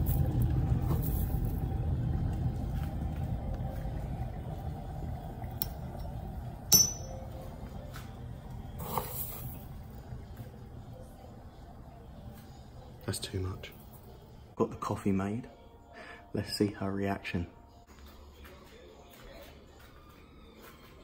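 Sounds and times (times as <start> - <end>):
electric kettle rumble: 0.0 - 13.5
spoon clinking ceramic cup: 6.7 - 7.2
spoon scooping coffee granules: 8.8 - 9.7.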